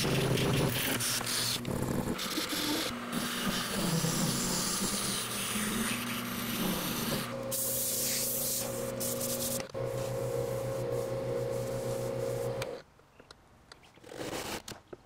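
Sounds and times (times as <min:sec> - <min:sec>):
lathe motor humming: 0:00.6 - 0:07.5
sandpaper hissing on spinning ball: 0:02.2 - 0:12.6.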